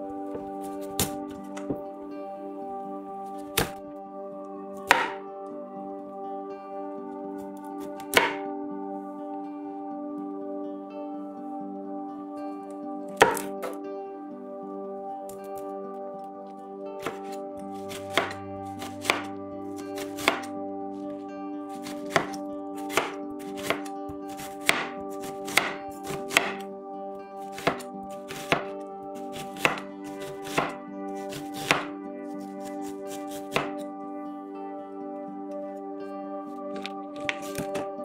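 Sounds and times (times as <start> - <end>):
knife striking cutting board: 4.9 - 5.2, 8.1 - 8.4, 13.2 - 13.8, 17.0 - 17.4, 18.1 - 18.4, 19.0 - 19.3, 20.2 - 20.5, 22.1 - 23.9, 24.6 - 24.9, 25.5 - 26.6, 27.6 - 28.7, 29.6 - 30.8, 31.4 - 31.9, 33.5 - 33.8.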